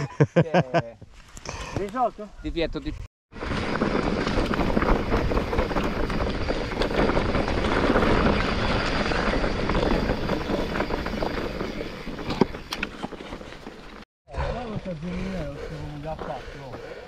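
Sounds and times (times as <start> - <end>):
wind buffeting microphone: 2.4 - 13.5
bike tyres on rough track: 3.3 - 17.0.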